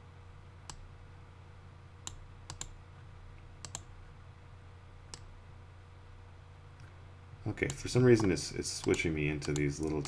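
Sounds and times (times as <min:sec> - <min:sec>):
low steady hum: 0:00.0 - 0:10.0
mouse and keyboard clicks: 0:02.0 - 0:02.8, 0:07.6 - 0:10.0.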